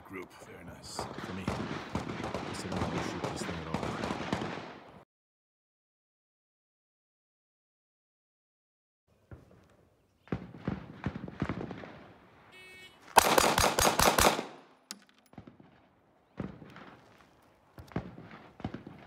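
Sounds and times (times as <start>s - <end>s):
rapid pistol shots: 1.0s - 5.0s, 13.2s - 15.8s, 17.9s - 19.0s.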